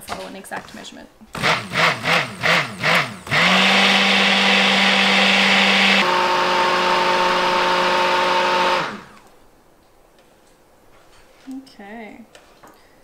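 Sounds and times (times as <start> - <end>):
immersion blender whining: 1.3 - 9.2.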